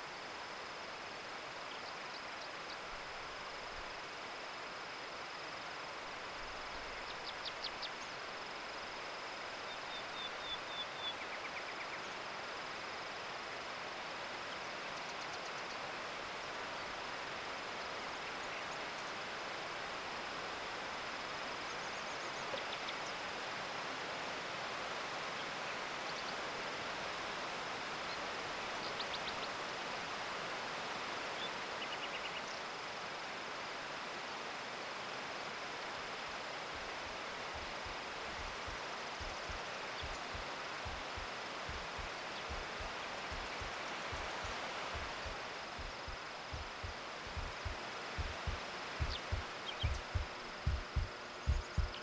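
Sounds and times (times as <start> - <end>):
steady rushing hiss: 0.0 - 52.0
small birds chirping: 37.6 - 52.0.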